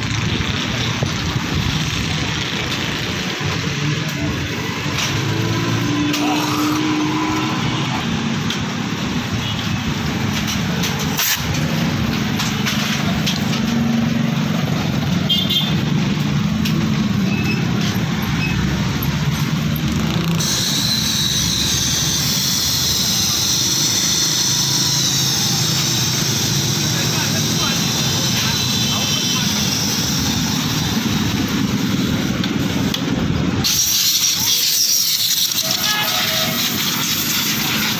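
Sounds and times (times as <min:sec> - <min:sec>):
compressed air hissing: 0:20.4 - 0:32.9, 0:33.5 - 0:37.9.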